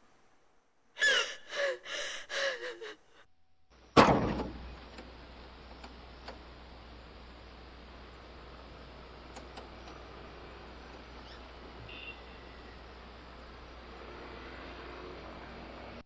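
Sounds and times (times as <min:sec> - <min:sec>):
woman sobbing and wailing: 0:01.0 - 0:03.3
car door slamming: 0:04.0 - 0:04.7.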